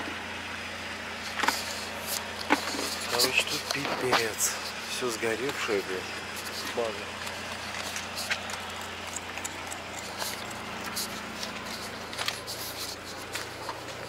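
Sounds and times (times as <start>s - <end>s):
van engine running: 0.0s - 14.0s
light clicks and rattles: 6.4s - 14.0s.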